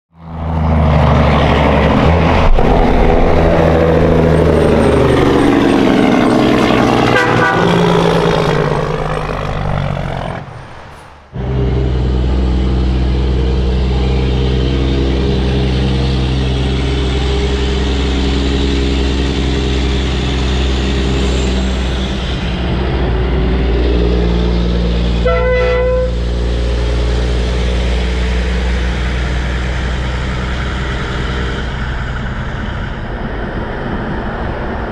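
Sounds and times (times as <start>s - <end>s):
diesel truck engine: 0.1s - 34.9s
air horn blast: 7.0s - 8.3s, 25.2s - 26.4s.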